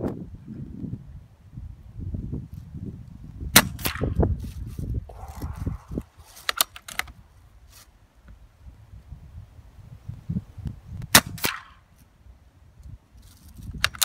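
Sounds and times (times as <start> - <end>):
wind on microphone: 0.0 - 7.7, 8.5 - 11.5
air rifle shot: 11.1 - 11.8.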